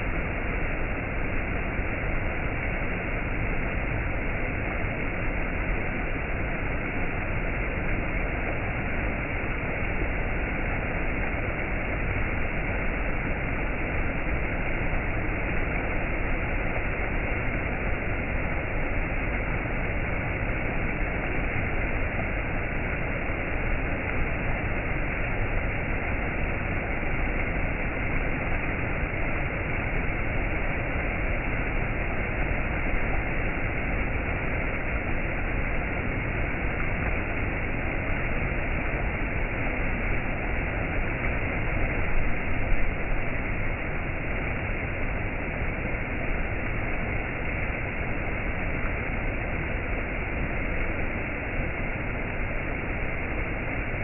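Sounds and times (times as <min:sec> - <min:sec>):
stream rushing over rocks: 0:00.0 - 0:54.0.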